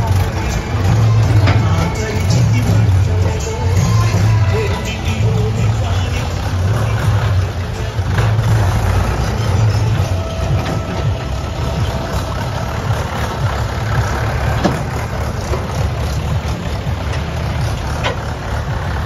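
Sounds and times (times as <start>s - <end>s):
diesel tractors passing: 0.0s - 19.0s
brief knocks from trailers: 14.3s - 16.4s.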